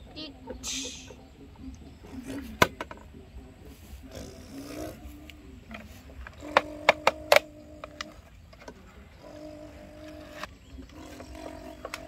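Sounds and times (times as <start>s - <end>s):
plastic mechanism clicks: 5.7s - 8.8s.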